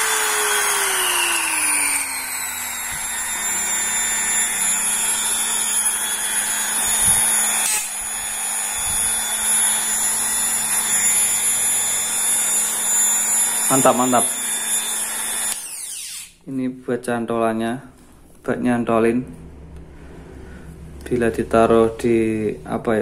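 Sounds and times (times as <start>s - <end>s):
rotary tool motor whining: 0.0s - 16.4s.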